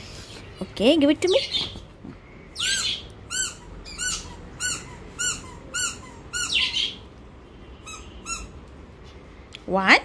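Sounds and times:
squeaky toy squeaks: 0:02.6 - 0:07.0, 0:07.8 - 0:08.6.

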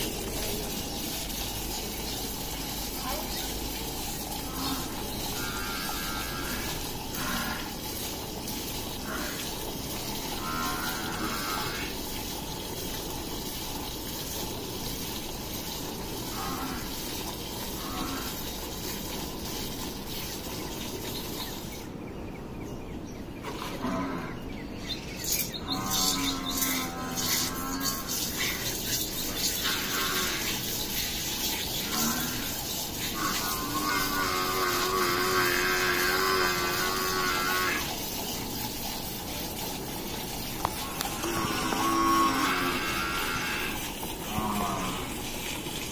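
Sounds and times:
cow calls: 0:04.3 - 0:07.8, 0:10.3 - 0:12.0, 0:16.3 - 0:17.0, 0:17.8 - 0:18.4, 0:23.5 - 0:24.4, 0:25.6 - 0:37.9, 0:40.6 - 0:45.2
milk squirting into steel bowl: 0:25.2 - 0:45.9.

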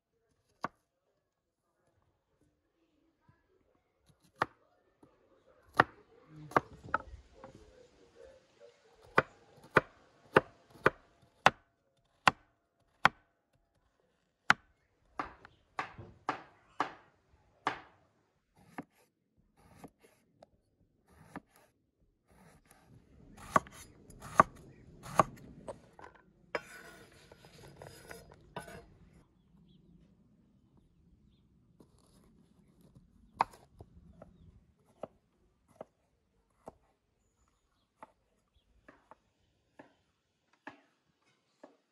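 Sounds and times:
knife chopping on wooden board: 0:09.1 - 0:11.6, 0:12.2 - 0:13.2, 0:15.2 - 0:18.0, 0:18.6 - 0:19.0, 0:19.6 - 0:20.2, 0:21.1 - 0:21.7, 0:22.3 - 0:25.9, 0:26.6 - 0:28.9
knife scraping cutting board: 0:22.3 - 0:25.9, 0:26.6 - 0:29.0.

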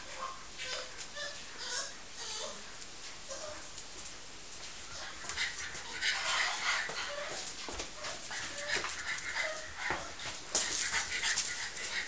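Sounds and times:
puppies whimpering and yipping: 0:00.0 - 0:02.6, 0:05.0 - 0:07.4, 0:08.0 - 0:12.0.

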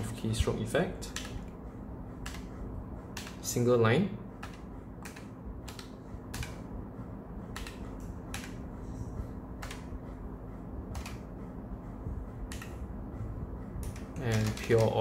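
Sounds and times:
mechanical keyboard key clacks: 0:13.8 - 0:15.0.

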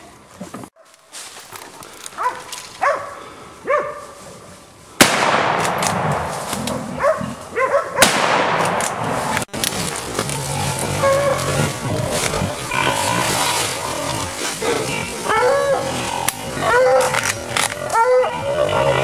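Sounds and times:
dogs barking: 0:02.2 - 0:04.1, 0:07.0 - 0:08.1, 0:15.2 - 0:15.9, 0:16.6 - 0:17.2, 0:17.8 - 0:19.0
loud gunshot: 0:05.0 - 0:06.4, 0:08.0 - 0:09.3.

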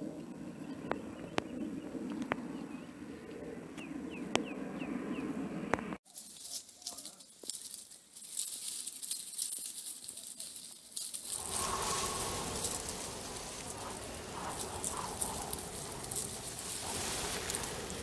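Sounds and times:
animals rustling in dry leaves: 0:06.0 - 0:18.0.

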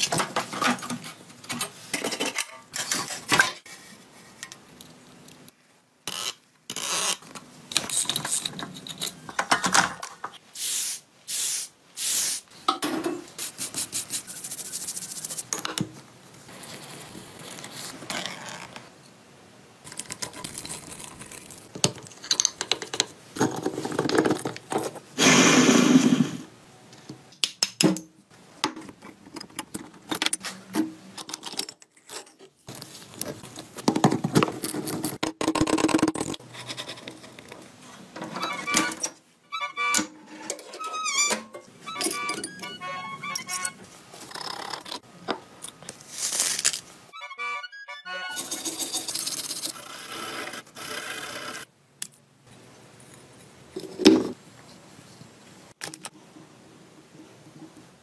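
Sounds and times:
metal tools clinking: 0:41.2 - 0:43.8.

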